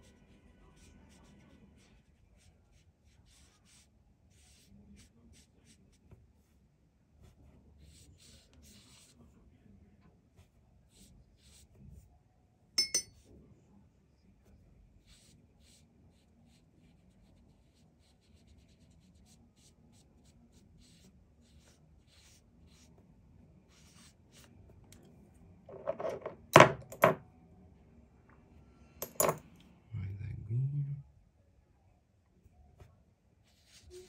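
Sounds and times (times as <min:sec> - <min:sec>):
paintbrush scratching on paper: 0:00.0 - 0:06.6, 0:07.2 - 0:09.4, 0:10.4 - 0:12.0, 0:15.0 - 0:23.0, 0:23.6 - 0:24.6, 0:33.4 - 0:34.0
hard objects clattering on table: 0:25.7 - 0:27.2, 0:29.0 - 0:29.4.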